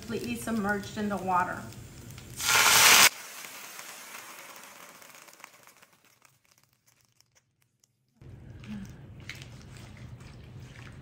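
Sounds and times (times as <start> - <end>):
soft sizzle with crackles: 0.0 - 10.9
loud hiss of water in hot pan: 0.9 - 5.8.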